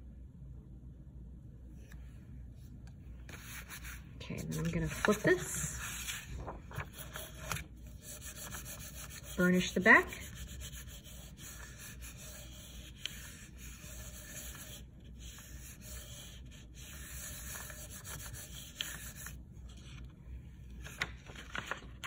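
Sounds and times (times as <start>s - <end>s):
hand rubbing paper: 3.2s - 20.0s, 20.8s - 21.9s
paper crackles: 3.3s - 16.3s, 20.7s - 22.0s.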